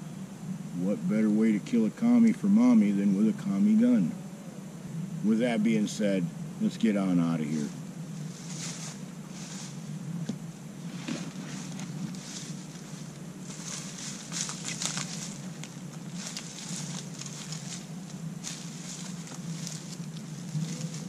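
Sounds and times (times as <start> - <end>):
steady low hum: 0.0 - 21.0
footsteps crunching dry leaves: 7.4 - 9.9, 10.9 - 21.0.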